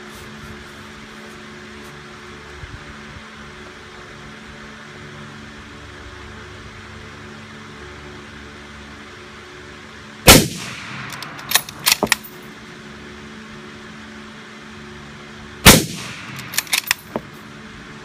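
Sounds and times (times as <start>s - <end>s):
rifle shots: 10.3s - 12.3s, 15.6s - 17.3s
rifle bolt clicking: 11.0s - 12.3s, 16.3s - 17.2s.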